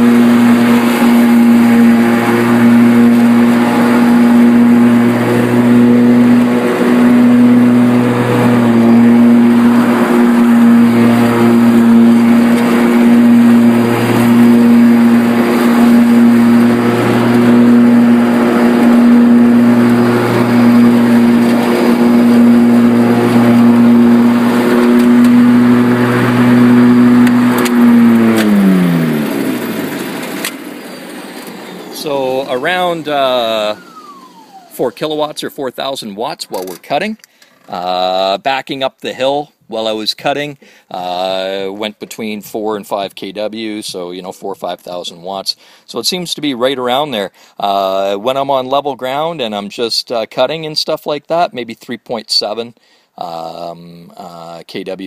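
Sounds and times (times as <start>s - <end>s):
electric mower motor humming: 0.0s - 35.3s.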